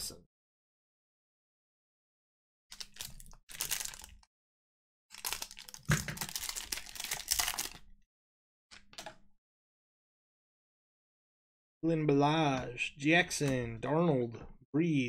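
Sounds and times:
foil wrapper crinkling and tearing: 2.7 - 4.2, 5.1 - 7.8.

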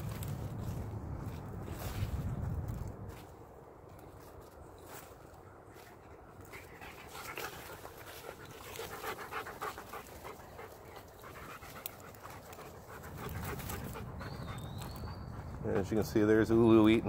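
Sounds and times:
dog panting: 6.4 - 16.0.

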